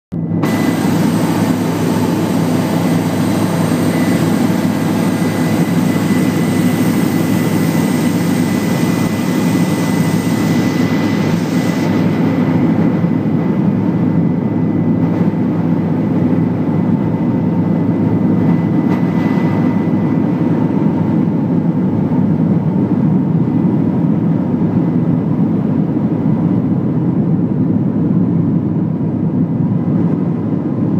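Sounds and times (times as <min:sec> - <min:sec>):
thin high whine: 0:00.1 - 0:21.8
helicopter engine and rotor drone: 0:00.1 - 0:30.9.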